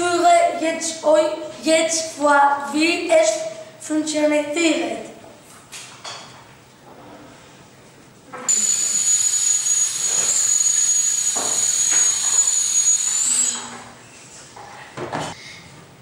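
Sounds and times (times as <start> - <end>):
high whistle: 8.5 - 13.8.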